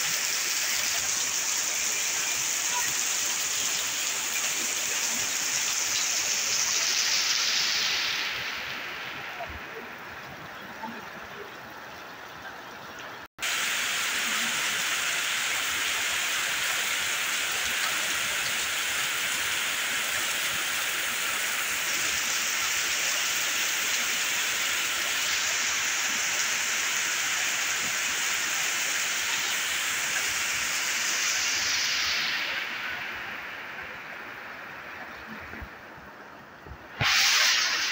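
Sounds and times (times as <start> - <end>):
heavy rain pouring: 0.0 - 37.9.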